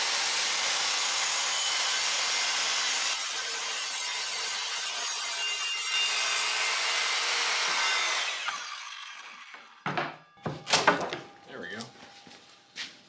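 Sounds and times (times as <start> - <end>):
circular saw cutting plywood: 0.0 - 9.8.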